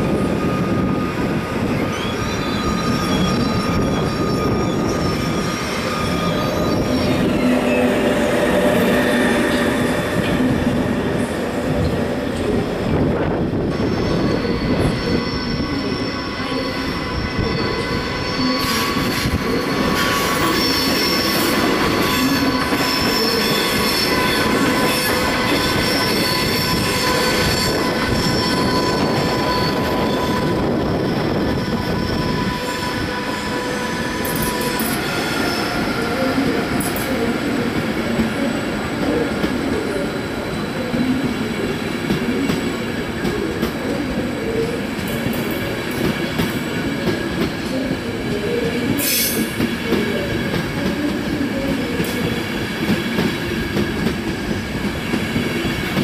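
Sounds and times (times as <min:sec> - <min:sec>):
train wheels squealing: 0:00.0 - 0:12.6, 0:13.3 - 0:56.0
train rumble: 0:02.7 - 0:56.0.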